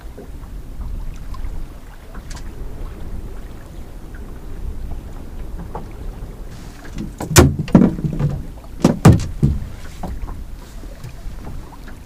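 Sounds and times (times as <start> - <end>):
low rumble of wind and water: 0.0 - 12.0
thumps against boat hull: 6.8 - 11.7.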